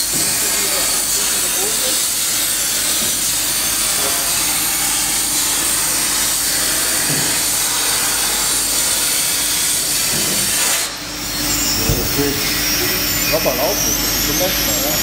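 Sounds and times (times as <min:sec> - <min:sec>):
plasma torch hissing: 0:11.5 - 0:15.0.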